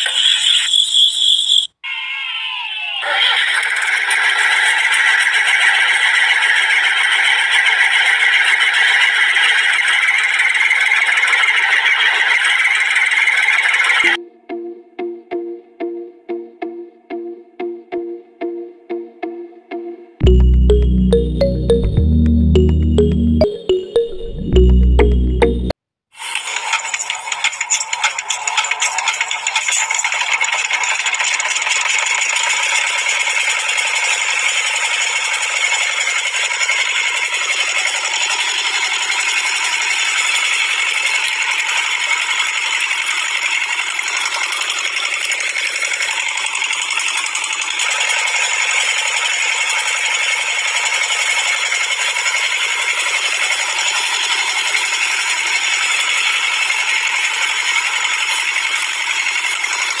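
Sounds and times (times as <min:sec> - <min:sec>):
small motor rattling: 0:02.1 - 0:14.2, 0:26.2 - 1:00.0.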